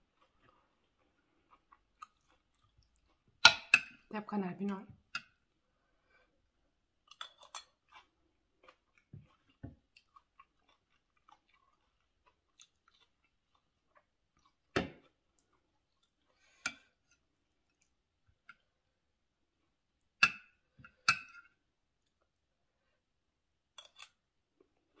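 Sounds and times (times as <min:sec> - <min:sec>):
chewing and wet mouth sounds: 0:00.0 - 0:03.9, 0:07.0 - 0:18.8.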